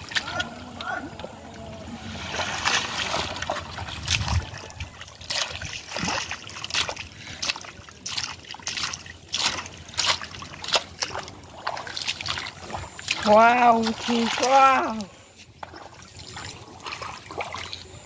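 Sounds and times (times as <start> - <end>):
hands splashing in muddy water: 2.2 - 14.8.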